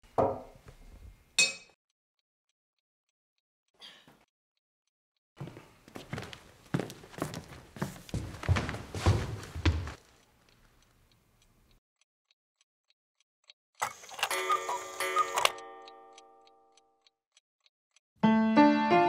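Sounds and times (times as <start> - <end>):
heavy footfalls and knocks: 8.2 - 10.0
clock ticking: 9.9 - 13.6, 14.3 - 18.0
piano music: 18.2 - 19.0.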